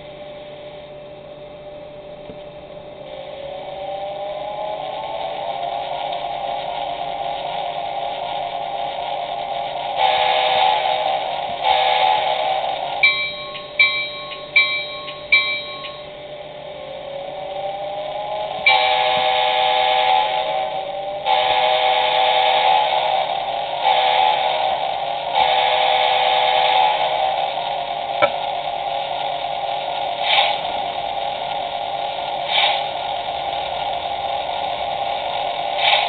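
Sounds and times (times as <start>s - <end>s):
electric motor whine: 0.0s - 36.0s
short dings: 13.0s - 16.1s.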